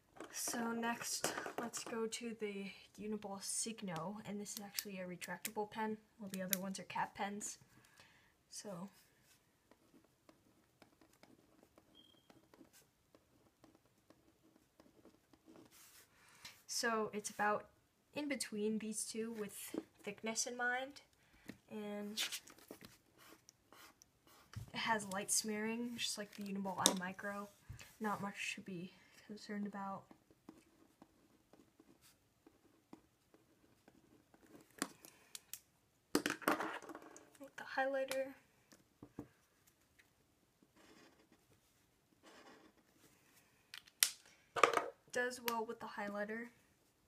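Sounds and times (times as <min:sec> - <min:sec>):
pen scratching on paper: 0:09.2 - 0:16.0, 0:22.2 - 0:24.6, 0:40.8 - 0:41.5, 0:42.2 - 0:42.9
gel pen scratching on paper: 0:22.2 - 0:24.6.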